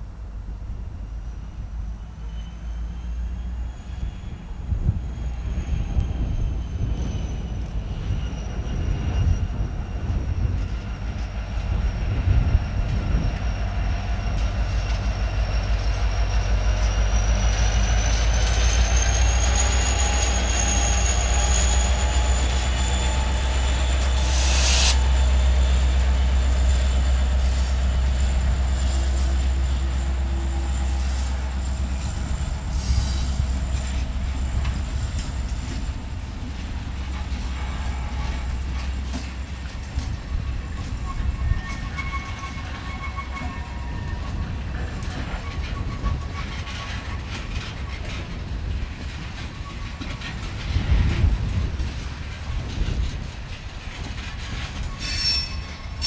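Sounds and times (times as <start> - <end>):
deep locomotive engine rumble: 0.0 - 56.0
wheel flange squeal: 1.2 - 52.0, 54.0 - 56.0
loud air hiss: 24.1 - 25.1
wheels ticking over rail joints: 33.6 - 55.0.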